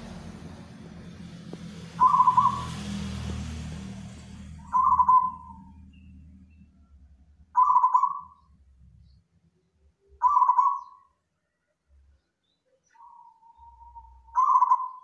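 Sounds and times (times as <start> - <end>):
dove cooing: 2.0 - 2.8, 4.6 - 5.7, 7.6 - 8.4, 10.2 - 11.0, 13.0 - 15.0.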